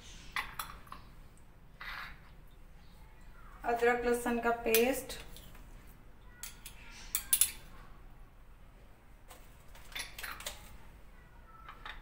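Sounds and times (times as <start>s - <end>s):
metal spoon clinking on plate: 6.4s - 7.7s.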